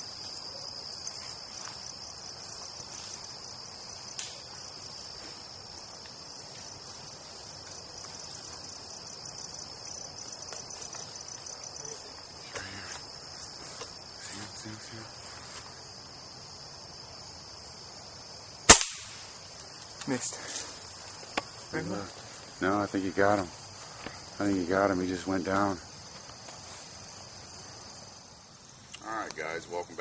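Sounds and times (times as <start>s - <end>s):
insects chorus: 0.0s - 30.0s
gunshot: 18.7s - 19.3s.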